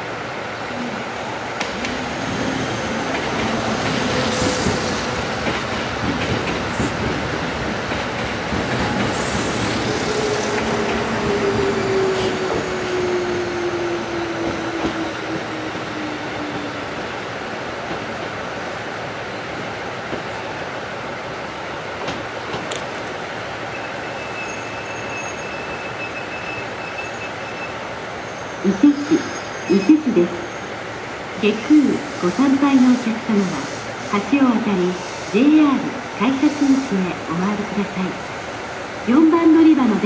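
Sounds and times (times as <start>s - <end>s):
train rumbling: 0.0s - 40.0s
train wheel squeals: 23.7s - 29.9s
train braking whine: 23.7s - 30.7s.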